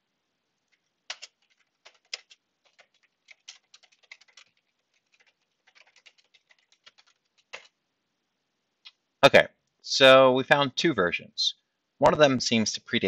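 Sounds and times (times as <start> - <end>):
keyboard typing: 0.7 - 7.8.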